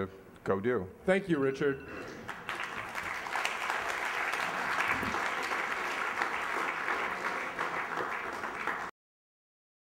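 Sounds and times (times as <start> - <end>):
audience applauding: 2.3 - 8.9.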